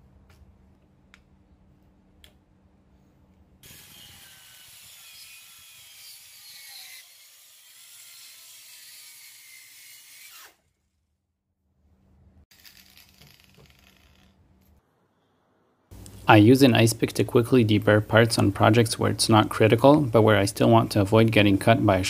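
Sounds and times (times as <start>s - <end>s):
circular saw cutting plywood: 3.6s - 10.9s, 12.5s - 14.4s.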